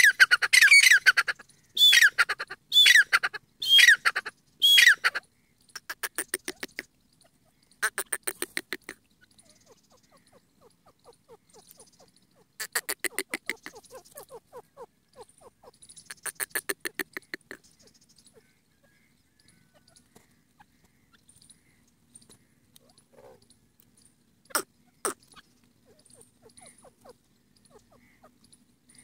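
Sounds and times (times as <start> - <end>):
soft bird chirps: 0.0 - 29.0.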